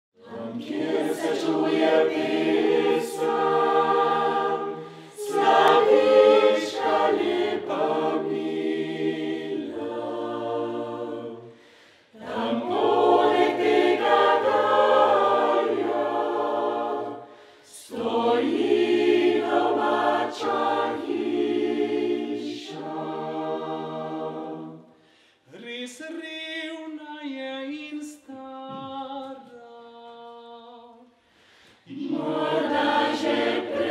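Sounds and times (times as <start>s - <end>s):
mixed choir singing unaccompanied: 0.2s - 25.0s, 31.8s - 33.9s.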